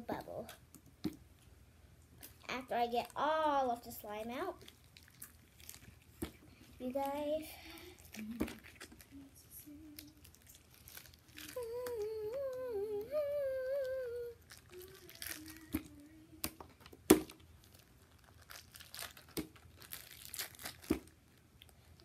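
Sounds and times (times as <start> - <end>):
plastic bag crinkling: 4.3 - 12.3, 13.2 - 22.0
child humming: 11.5 - 16.2.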